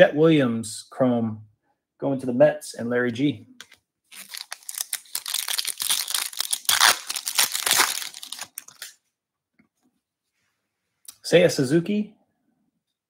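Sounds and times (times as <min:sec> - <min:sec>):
foil wrapper tearing and crinkling: 0:03.6 - 0:08.9.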